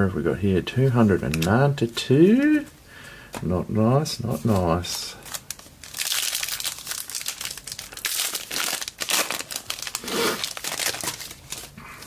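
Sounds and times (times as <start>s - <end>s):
wrapper being torn and crinkled: 4.8s - 11.8s.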